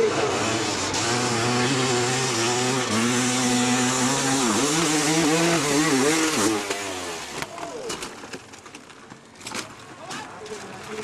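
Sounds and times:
dirt bike engine revving: 0.0 - 7.6.

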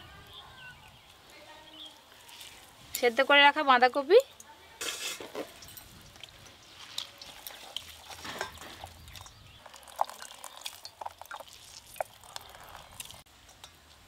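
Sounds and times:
water dripping from squeezed cabbage: 5.6 - 13.2.

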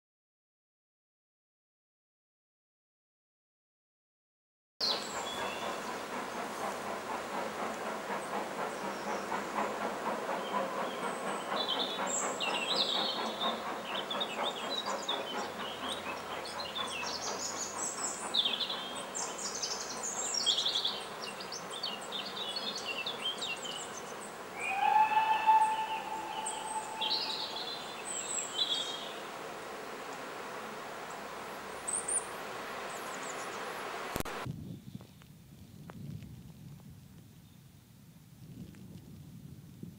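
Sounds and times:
small birds singing: 4.8 - 6.8, 7.6 - 29.4, 31.0 - 33.9
steam train clattering in tunnel: 4.8 - 29.7
steam whistle: 24.5 - 28.1.

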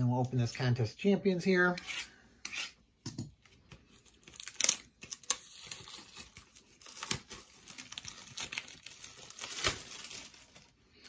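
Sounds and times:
plastic wrapping crinkling: 4.0 - 11.0
plastic wrapping ripping: 4.2 - 11.0.

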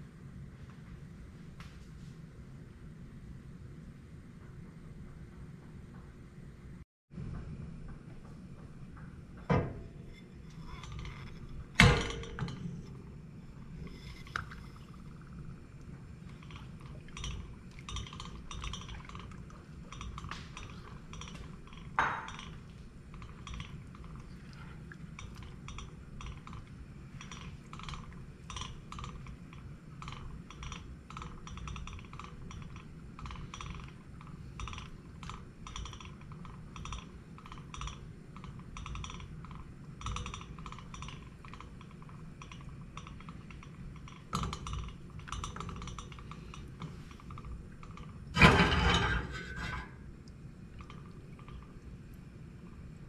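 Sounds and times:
spatula scraping metal pot: 10.0 - 11.7, 48.4 - 50.1.

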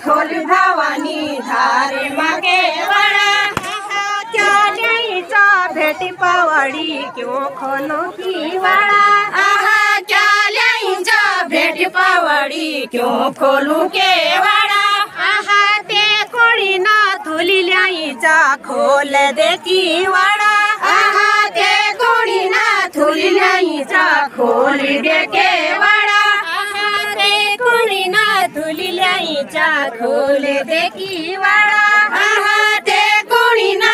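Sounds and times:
women singing folk song: 0.0 - 33.9.

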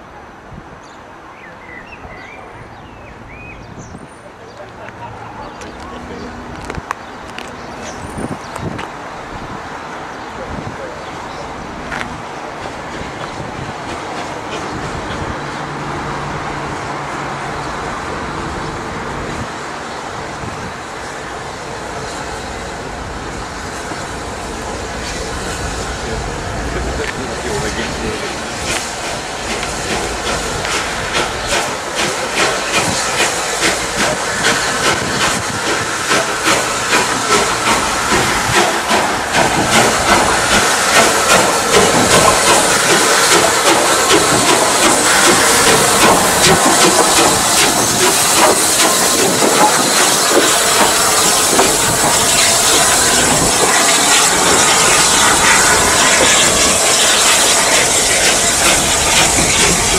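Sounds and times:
steam locomotive passing: 0.0 - 59.9
loud steam hiss: 17.7 - 59.9.

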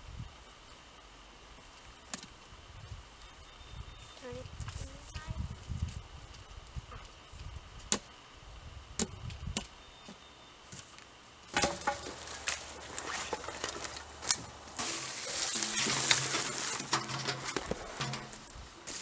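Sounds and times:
brush dragged along ground: 11.5 - 19.0.

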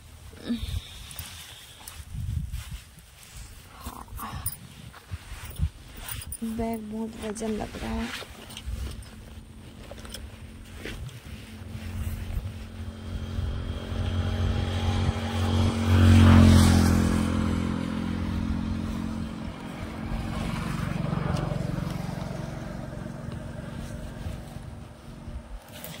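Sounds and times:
wind buffeting microphone: 0.6 - 9.8
motorcycle engine at speed: 7.3 - 26.0.

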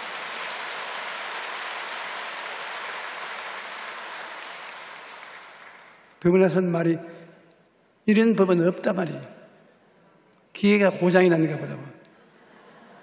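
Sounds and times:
congregation applauding: 0.0 - 6.3.

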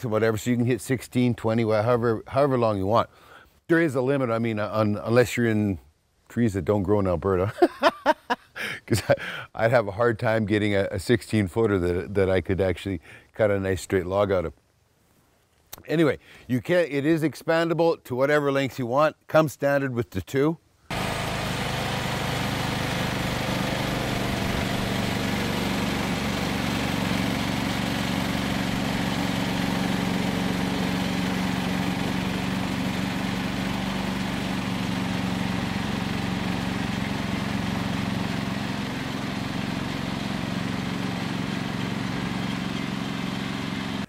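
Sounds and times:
sawmill engine drone: 20.9 - 44.0.

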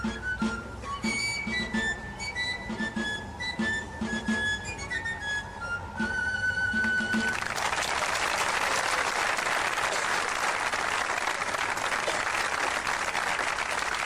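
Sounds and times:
crowd applauding: 7.2 - 14.0.

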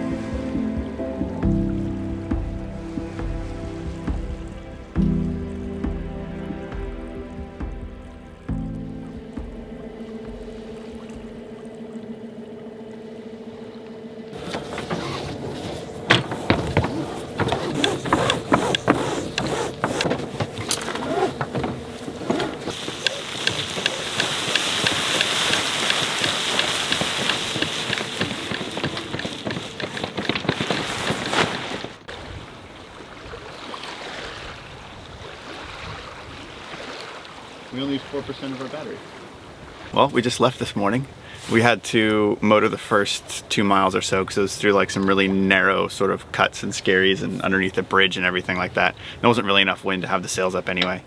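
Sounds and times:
water rushing along a hull: 0.0 - 51.0
steady hum: 4.6 - 30.4
rigging clattering: 14.3 - 32.0
sail cloth flapping: 14.3 - 32.2.

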